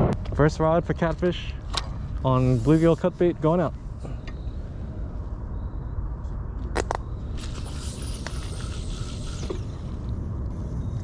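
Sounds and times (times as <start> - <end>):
low rumble: 3.2 - 11.0
line hissing off spool: 7.3 - 10.1.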